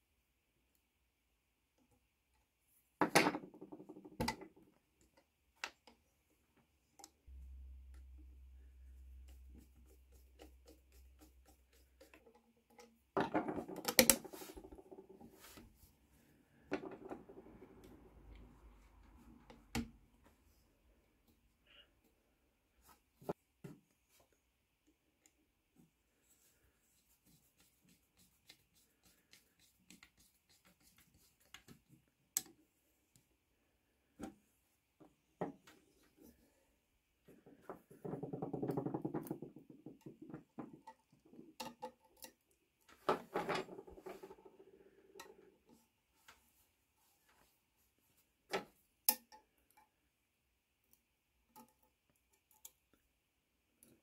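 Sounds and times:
low steady hum: 7.3 - 11.2.

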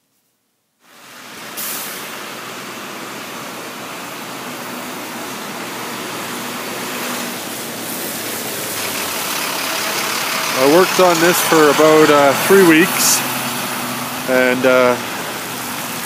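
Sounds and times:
traffic hiss: 0.8 - 16.0
faint engine hum: 3.2 - 16.0.

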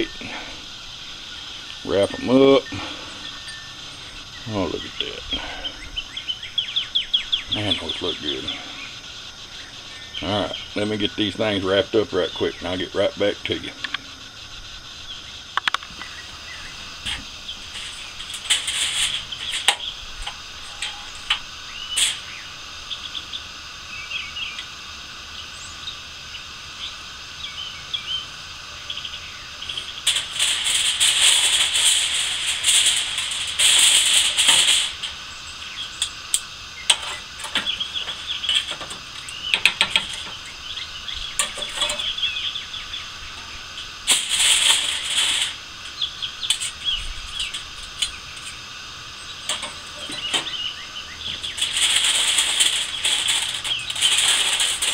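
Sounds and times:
aluminum foil crinkling: 16.8 - 22.3, 29.6 - 42.3, 43.2 - 48.6, 49.3 - 54.9.

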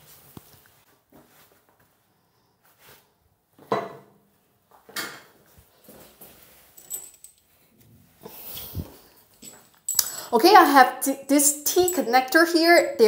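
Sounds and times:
tools and parts clattering: 6.7 - 7.5, 8.4 - 10.3.

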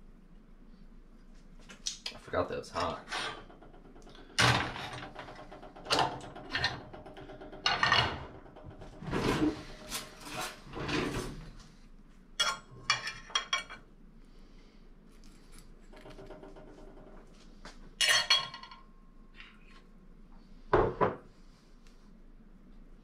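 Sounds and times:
cookware knocking and clattering: 4.6 - 8.3, 18.0 - 18.8.

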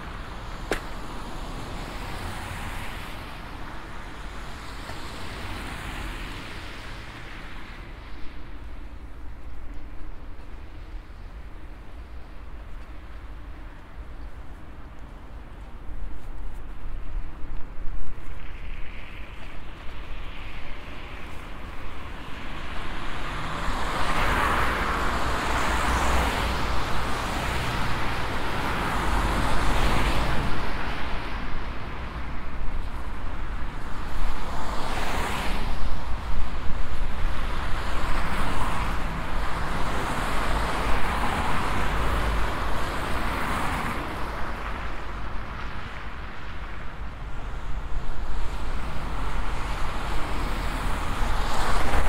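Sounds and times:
cars passing: 0.0 - 52.0
low traffic rumble: 0.0 - 52.0.

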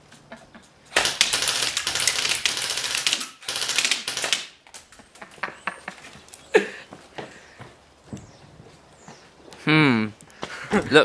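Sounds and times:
airsoft gun firing full auto: 0.9 - 4.6
pellets smacking targets: 0.9 - 5.0.

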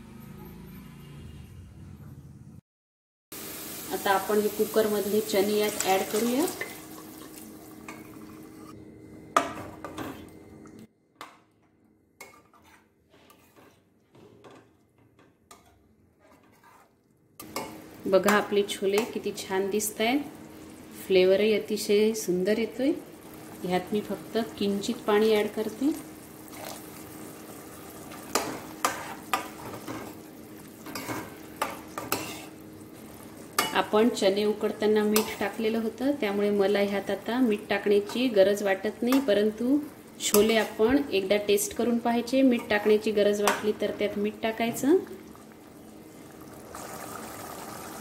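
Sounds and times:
food sizzling in pan: 3.4 - 8.8, 15.6 - 48.0
steel spoon stirring and scraping: 12.2 - 14.8, 15.5 - 17.8, 28.3 - 30.2, 30.8 - 32.6, 35.1 - 35.6, 40.3 - 40.9
curry simmering: 43.8 - 48.0.

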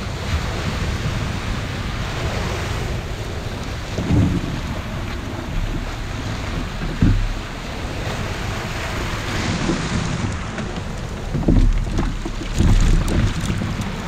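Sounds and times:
surf washing around kayak: 0.0 - 14.0
wind buffeting microphone: 0.0 - 14.0.

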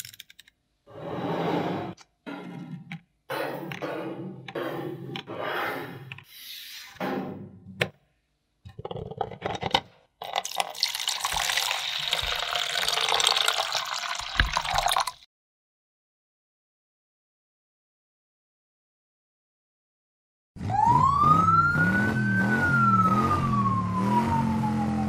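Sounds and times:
water pouring: 10.2 - 15.3.

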